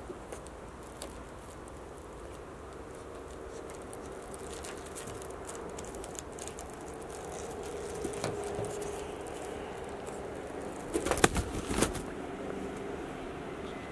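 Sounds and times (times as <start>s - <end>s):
faint steady hum: 0.0s - 13.9s
wicker basket rustling: 0.1s - 13.0s.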